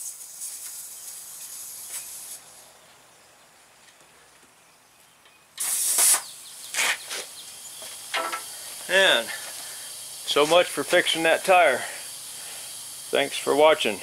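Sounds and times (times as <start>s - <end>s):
short bursts of air: 0.0s - 2.6s, 5.6s - 14.0s
compressed air hissing: 0.0s - 2.7s, 5.6s - 14.0s.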